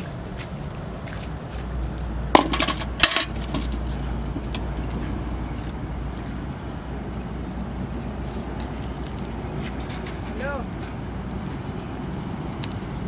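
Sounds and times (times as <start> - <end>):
metal bucket clattering: 2.3 - 5.0.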